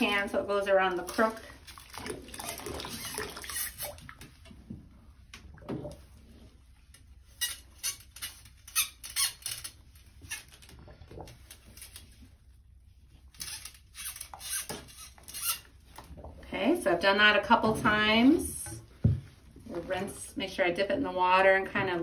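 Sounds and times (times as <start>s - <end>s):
brush squeaking in metal tube: 2.8s - 4.1s, 7.1s - 11.0s, 13.3s - 16.0s.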